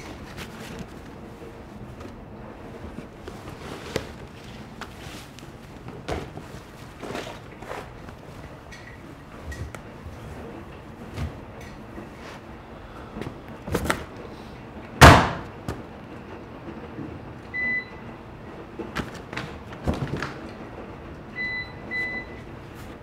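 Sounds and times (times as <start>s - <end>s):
handling knocks: 2.9s - 8.2s
washing machine door banging shut: 15.0s - 15.5s.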